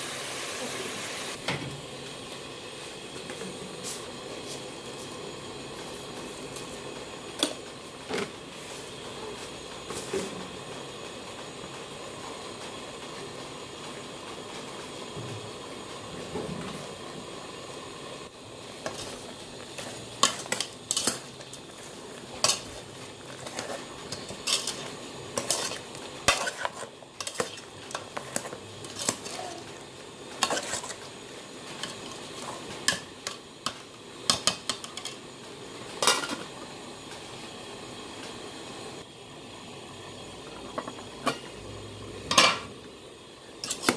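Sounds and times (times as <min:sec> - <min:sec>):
sizzling in pot: 0:00.0 - 0:43.9
metal ladle scraping pot: 0:22.4 - 0:29.4.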